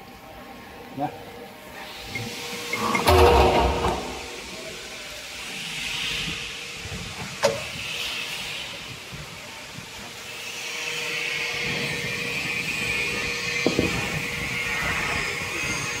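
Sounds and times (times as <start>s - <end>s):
factory hiss: 1.6s - 16.0s
metal parts knocking: 3.0s - 4.5s.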